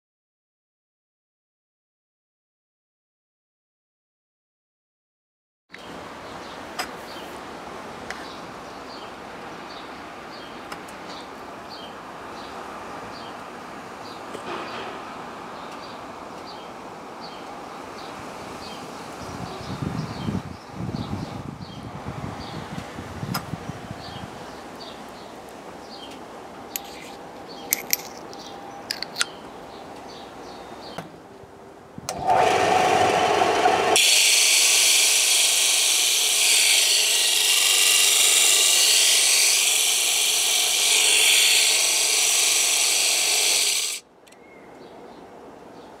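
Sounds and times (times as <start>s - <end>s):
metal grinding rasp: 26.8s - 29.3s, 33.9s - 44.0s
disc sander running: 32.1s - 44.0s.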